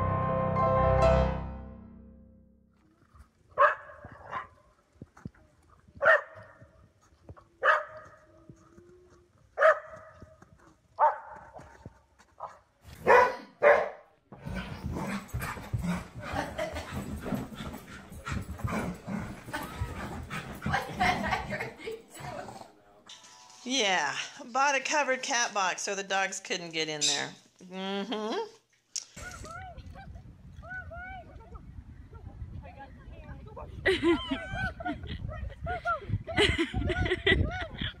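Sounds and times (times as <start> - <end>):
dog barking: 3.6 - 4.5, 6.0 - 6.4, 7.6 - 8.1, 9.6 - 10.1, 11.0 - 11.6, 12.4 - 14.1.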